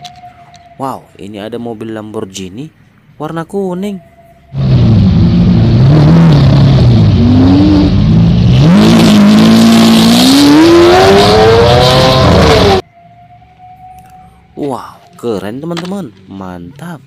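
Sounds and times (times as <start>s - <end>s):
sports car engine revving and accelerating: 4.6s - 12.8s.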